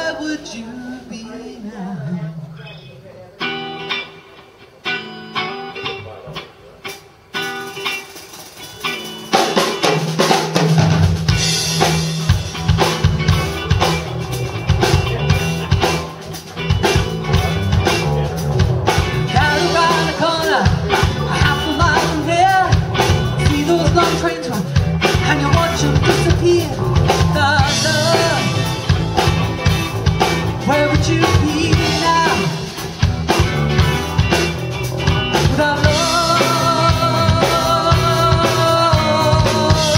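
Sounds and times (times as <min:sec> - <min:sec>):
live band playing: 0:00.0 - 0:39.9.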